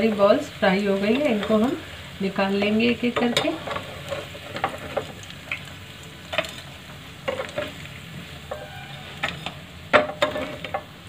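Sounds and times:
hot oil sizzling: 0.0 - 11.0
spoon scraping and clicking on pan: 6.3 - 7.9, 8.5 - 10.9.

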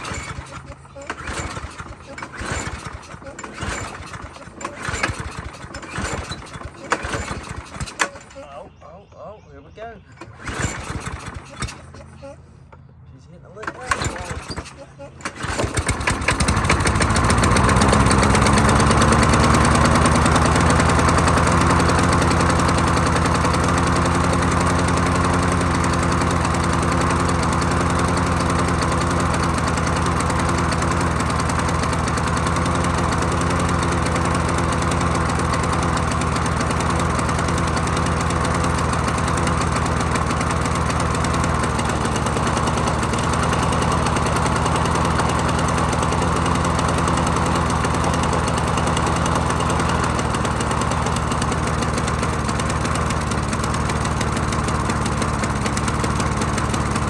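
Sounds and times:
lawn mower engine running: 0.0 - 57.0.

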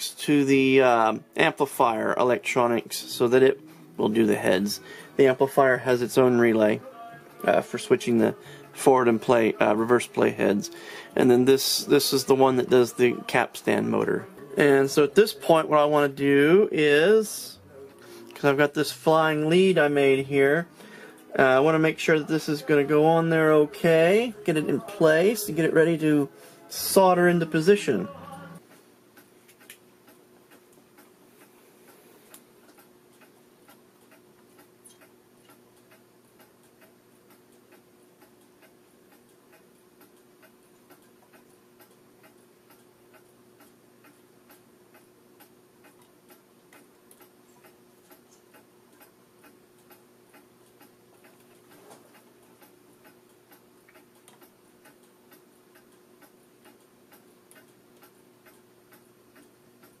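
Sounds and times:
steady low hum: 0.0 - 60.0
faint regular ticking: 28.6 - 60.0.

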